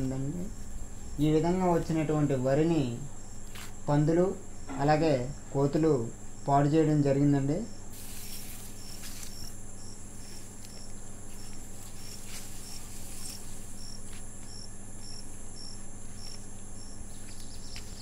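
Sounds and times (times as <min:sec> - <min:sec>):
crickets chirping: 0:00.0 - 0:18.0
high-pitched insect trill: 0:00.0 - 0:18.0.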